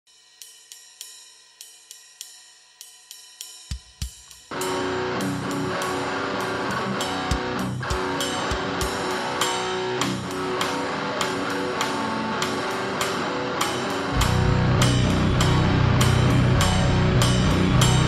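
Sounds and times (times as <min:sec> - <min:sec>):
electric guitar chord riff: 0:04.5 - 0:18.0
cymbal taps: 0:07.0 - 0:18.0.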